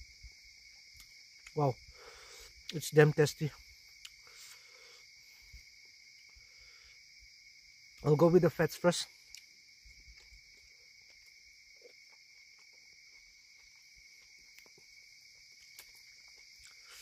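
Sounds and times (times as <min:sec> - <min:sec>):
night insects trilling: 0:00.0 - 0:17.0
person chewing food: 0:09.2 - 0:17.0.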